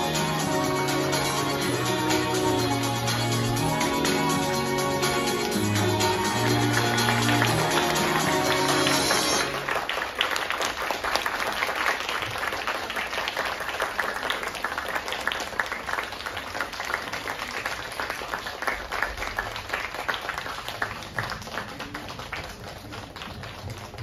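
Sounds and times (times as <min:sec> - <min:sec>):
closing music: 0:00.0 - 0:10.1
audience applauding: 0:00.0 - 0:24.0.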